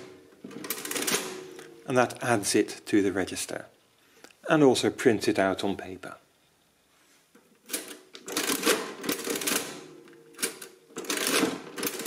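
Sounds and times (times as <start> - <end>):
adding machine mechanism clattering: 0.0 - 1.5, 7.6 - 12.0.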